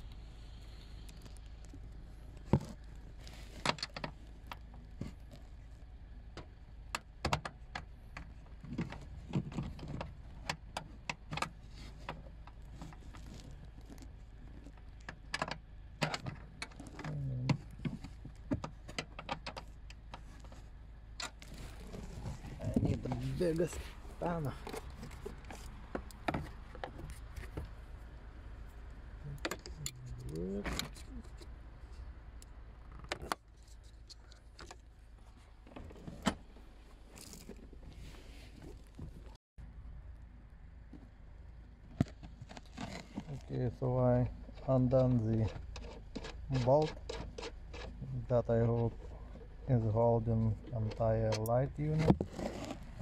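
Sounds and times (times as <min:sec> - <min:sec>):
low hum of a voice: 0:17.0 - 0:17.7, 0:29.2 - 0:30.9.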